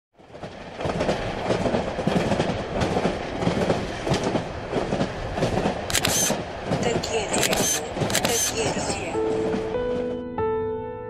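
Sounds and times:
train rumbling on rails: 0:00.2 - 0:10.2.

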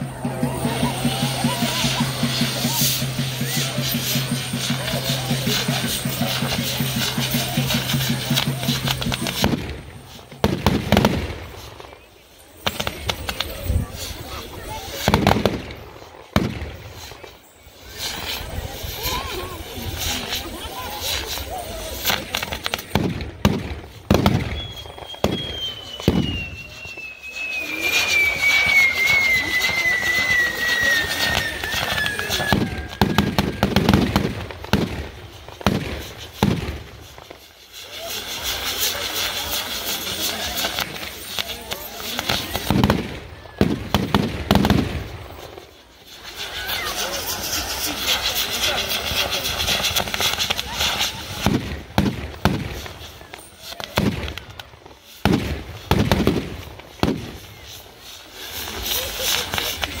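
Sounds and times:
firecrackers banging: 0:00.0 - 1:00.0
high whistle falling in pitch: 0:24.5 - 0:33.7.

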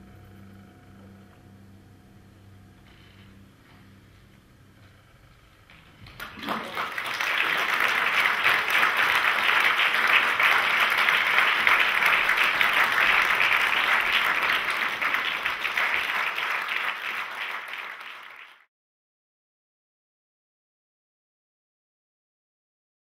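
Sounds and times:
audience applauding: 0:06.0 - 0:18.7.

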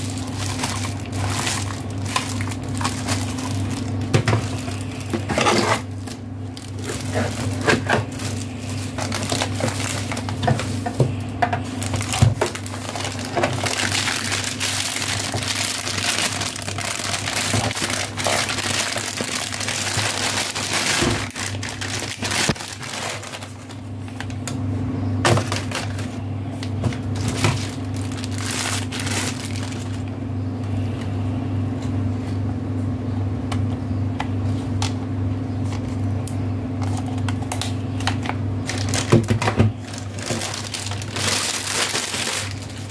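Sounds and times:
plastic bags crinkling: 0:00.0 - 0:24.6, 0:25.2 - 0:30.2, 0:36.8 - 0:42.9
steady low hum: 0:00.0 - 0:42.9.

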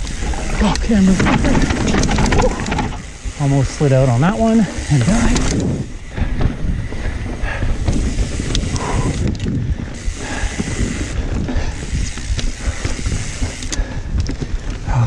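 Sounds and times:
bike clicks and rattles: 0:00.0 - 0:15.0
bike tyre rumble on trail: 0:00.0 - 0:15.0.

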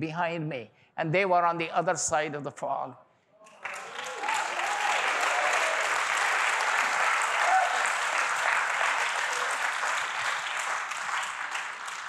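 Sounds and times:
congregation applauding: 0:03.5 - 0:12.0.

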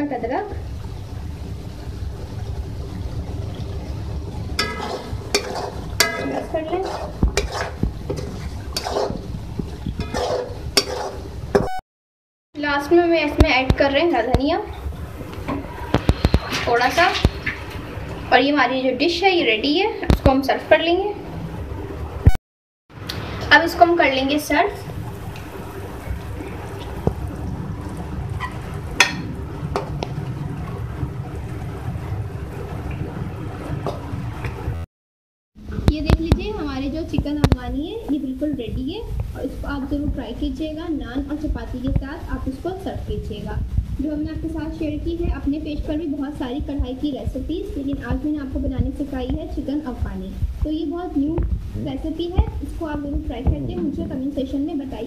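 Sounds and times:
metal spoon clinking on pan: 0:04.6 - 0:07.7
spatula scraping and knocking wok: 0:04.6 - 0:11.7.

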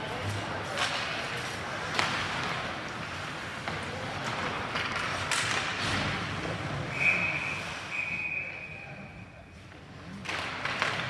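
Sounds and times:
hockey sticks and puck clacking: 0:00.0 - 0:06.4, 0:09.6 - 0:11.0
skates on ice: 0:00.0 - 0:08.8, 0:09.5 - 0:11.0
referee's whistle blasts: 0:06.9 - 0:09.0.

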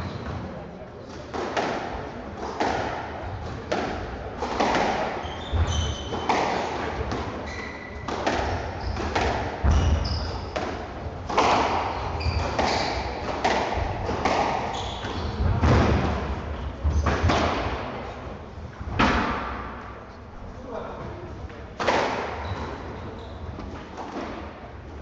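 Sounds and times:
racket striking squash ball: 0:00.0 - 0:17.9, 0:18.9 - 0:19.8, 0:21.8 - 0:22.9, 0:23.6 - 0:24.6
shoes squeaking on wooden floor: 0:05.2 - 0:06.7, 0:07.4 - 0:10.6, 0:11.9 - 0:13.1, 0:14.6 - 0:15.4
ball smacking court walls: 0:08.0 - 0:16.2.

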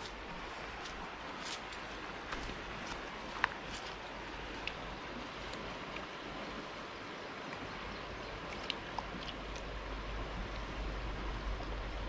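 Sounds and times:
river water rushing over rocks: 0:00.0 - 0:12.0
low rumble: 0:09.5 - 0:12.0.

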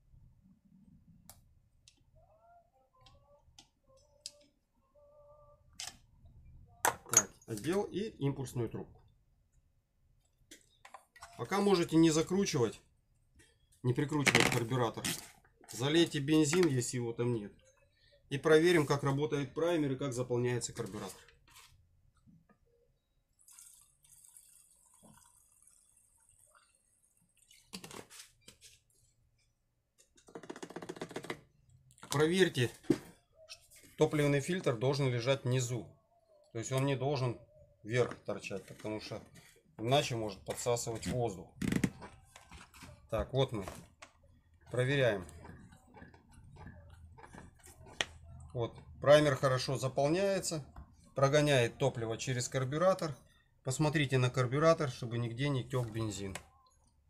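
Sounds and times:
fuel trickling through funnel: 0:23.3 - 0:27.8.

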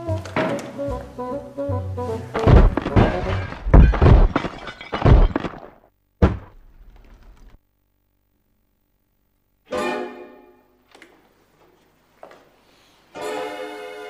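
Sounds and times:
background music: 0:00.0 - 0:03.7, 0:09.7 - 0:10.8, 0:13.1 - 0:14.0
sharp thud: 0:02.4 - 0:05.6, 0:06.2 - 0:07.2
heavy deep thuds: 0:02.4 - 0:07.4.

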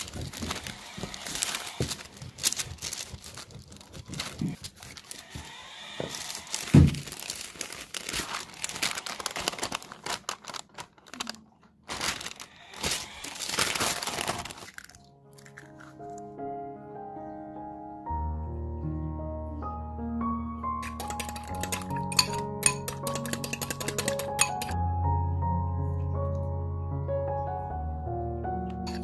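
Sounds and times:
baking paper rustling: 0:00.0 - 0:15.0.

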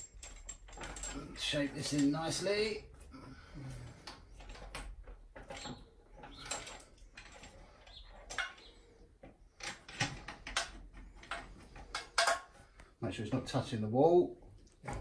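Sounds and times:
metal pipe clicking and scraping: 0:04.0 - 0:12.9.

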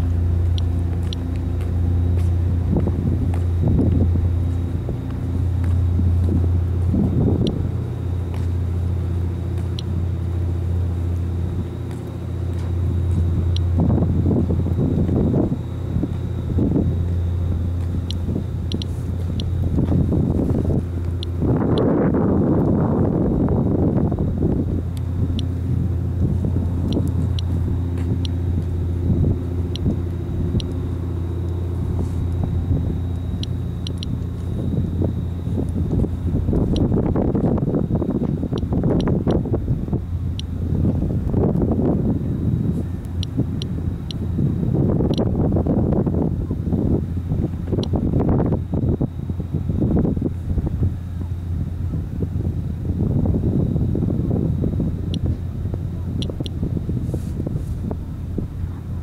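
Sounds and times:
low engine hum: 0:00.0 - 0:59.0
geiger counter ticks: 0:13.1 - 0:13.8, 0:17.8 - 0:19.8, 0:21.0 - 0:22.0, 0:26.8 - 0:30.8, 0:32.3 - 0:39.5, 0:45.0 - 0:45.3, 0:47.7 - 0:48.3, 0:56.2 - 0:56.6.

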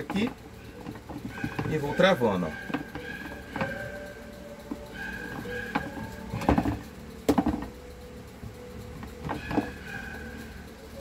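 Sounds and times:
fan grille knocks and clicks: 0:00.0 - 0:10.4.

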